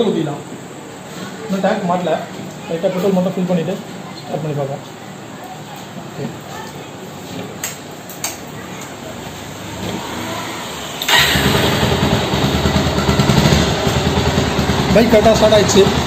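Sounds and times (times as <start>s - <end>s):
motorcycle engine starting: 9.6s - 16.0s.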